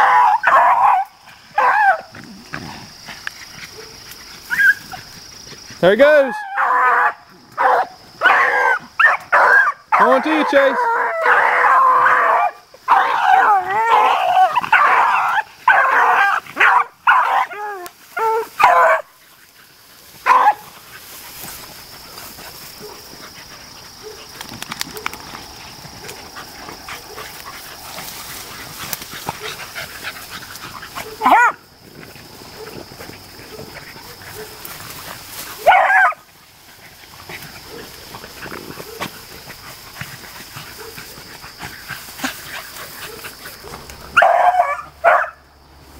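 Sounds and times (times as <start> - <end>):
dogs baying: 0.0 - 45.5.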